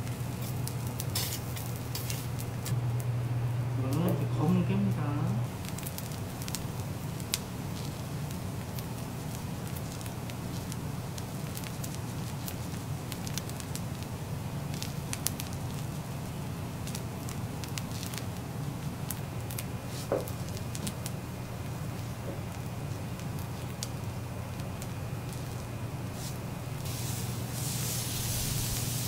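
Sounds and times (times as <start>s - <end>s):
fried rice sizzling on a griddle: 0.0s - 2.7s, 5.5s - 29.0s
sharp crackles: 0.0s - 2.8s, 5.5s - 29.0s
steady low hum: 0.0s - 29.0s.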